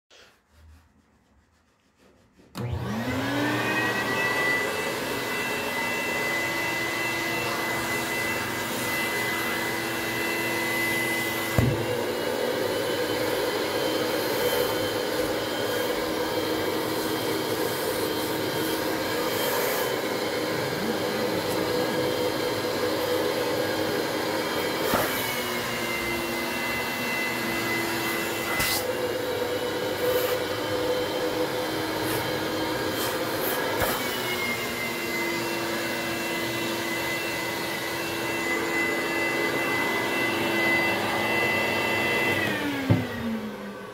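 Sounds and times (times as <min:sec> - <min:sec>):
vacuum motor whine: 0:02.6 - 0:43.9.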